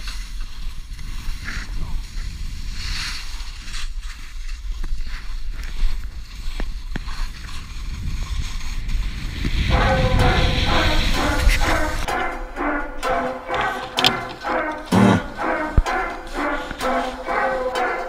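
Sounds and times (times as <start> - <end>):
skis scraping over snow: 0.0 - 12.1
wind rumbling on microphone: 0.0 - 12.1.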